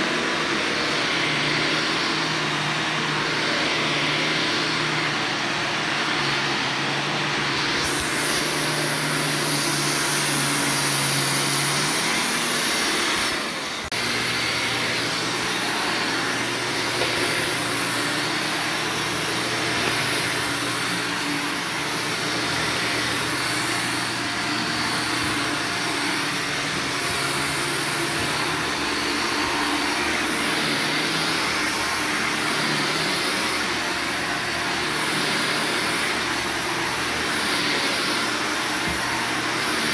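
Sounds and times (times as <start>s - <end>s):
vacuum cleaner running: 0.0s - 39.9s.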